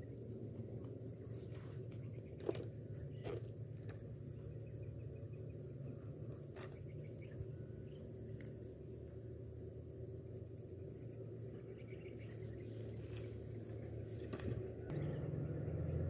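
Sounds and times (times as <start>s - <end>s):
insect trilling: 4.4s - 16.0s.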